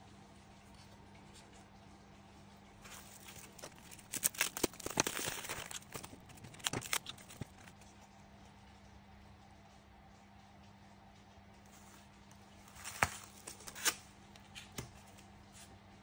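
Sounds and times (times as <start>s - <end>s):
paper and plastic wrapping crinkling: 2.8s - 7.9s, 11.7s - 15.3s.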